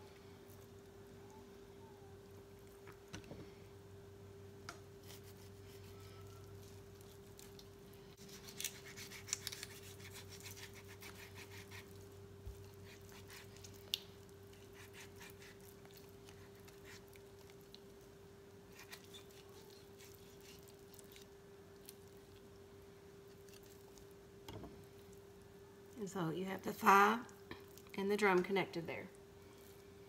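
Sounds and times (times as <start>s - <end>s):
steady low hum: 0.0s - 30.0s
knife cutting raw chicken: 8.2s - 13.8s, 14.5s - 17.1s.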